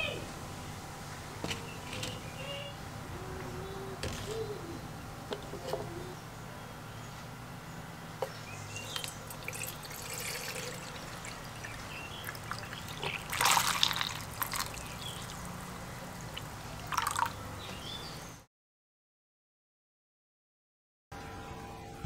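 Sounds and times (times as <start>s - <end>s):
liquid pouring and splashing: 9.3s - 15.4s, 16.3s - 17.4s.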